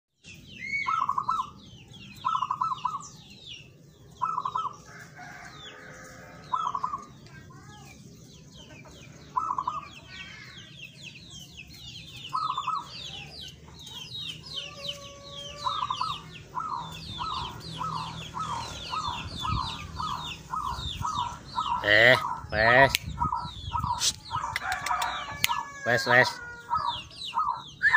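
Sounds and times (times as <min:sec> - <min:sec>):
dove cooing: 0:02.2 - 0:03.0, 0:06.5 - 0:07.1, 0:09.3 - 0:10.0, 0:14.6 - 0:22.5
high thin bird chirping: 0:09.3 - 0:25.7.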